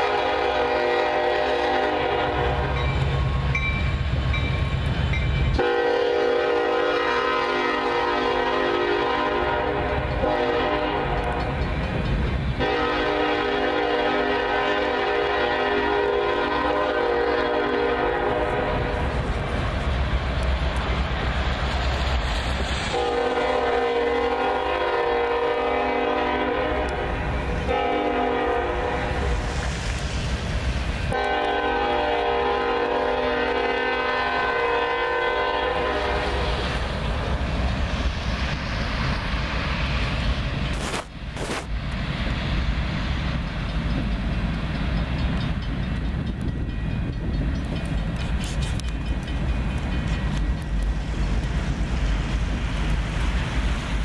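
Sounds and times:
locomotive air horn blasts: 0.0s - 2.8s, 5.6s - 11.5s, 12.6s - 19.1s, 22.9s - 29.3s, 31.1s - 36.6s.

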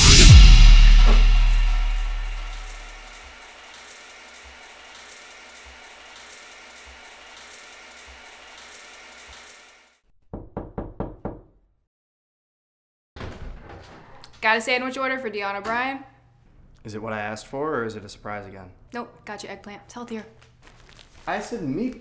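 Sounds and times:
music: 0.0s - 3.2s
sink tap running: 3.0s - 10.5s.

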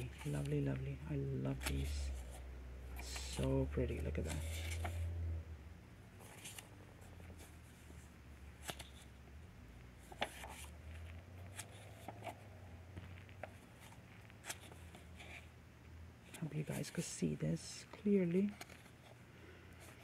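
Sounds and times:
paper sheets rustling: 0.0s - 5.0s, 8.5s - 9.1s, 10.0s - 15.5s
low steady hum: 0.0s - 20.0s.

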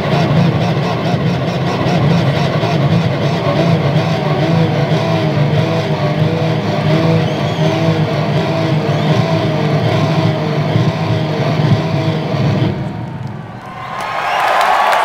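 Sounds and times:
distorted electric guitar solo: 0.0s - 13.2s
heavy low rumble: 9.8s - 13.6s.

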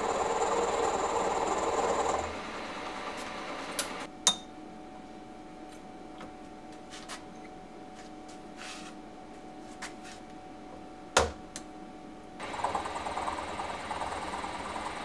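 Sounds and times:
milling machine motor running: 0.0s - 4.1s, 12.4s - 15.0s.

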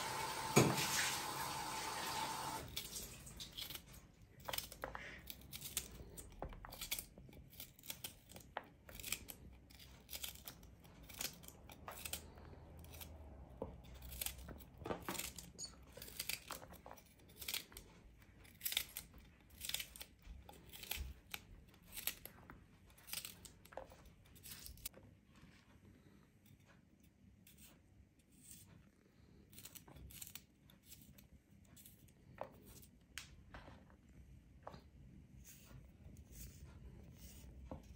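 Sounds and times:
knife slicing chili pepper: 35.4s - 37.9s.

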